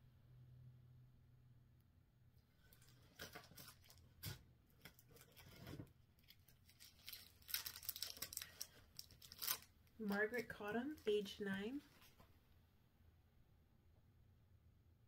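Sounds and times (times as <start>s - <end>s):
paper and plastic rustling: 2.6s - 12.3s.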